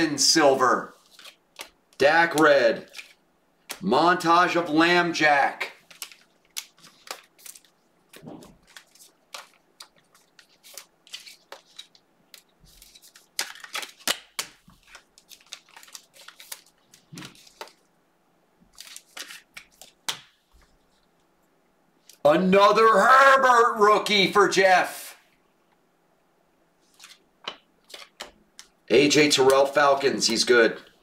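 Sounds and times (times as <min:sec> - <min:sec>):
trading cards rustling and clicking: 0:00.9 - 0:03.9, 0:05.8 - 0:17.9, 0:18.7 - 0:20.9, 0:26.9 - 0:30.9.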